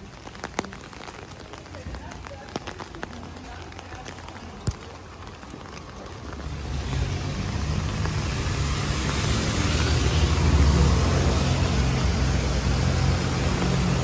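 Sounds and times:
car tyres on wet road: 0:00.0 - 0:14.0
light rain: 0:00.0 - 0:14.0.

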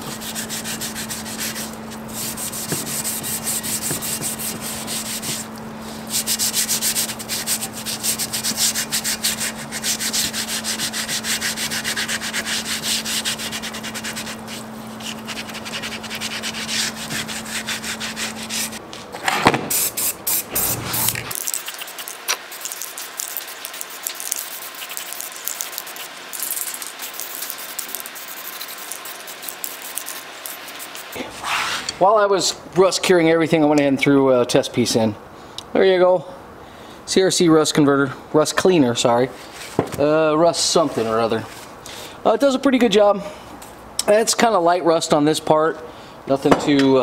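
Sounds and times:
scrubbing pad on wet metal: 0:00.0 - 0:18.8, 0:20.5 - 0:31.9
steady low hum: 0:00.0 - 0:47.0.

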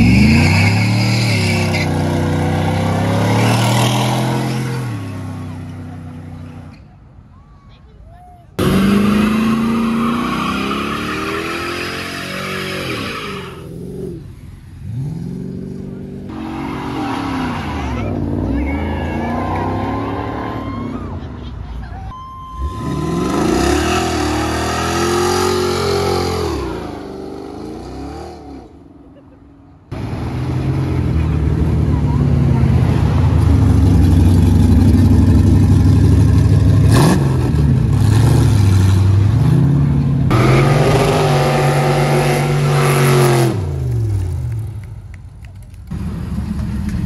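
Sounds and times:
truck engine revving: 0:00.0 - 0:06.3, 0:08.6 - 0:20.6, 0:22.7 - 0:28.7, 0:30.0 - 0:44.9
loud low car engine running: 0:30.0 - 0:41.0.

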